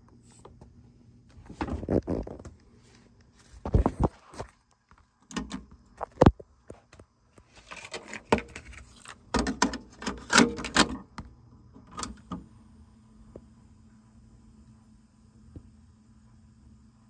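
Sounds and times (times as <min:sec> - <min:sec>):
cassette deck clicks and clunks: 0:05.2 - 0:06.4, 0:07.8 - 0:12.5.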